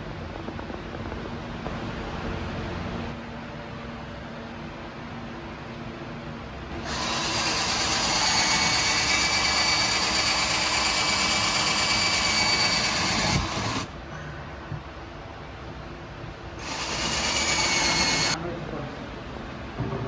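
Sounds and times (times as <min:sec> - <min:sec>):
power drill boring into board: 0:06.8 - 0:13.9, 0:16.6 - 0:18.4.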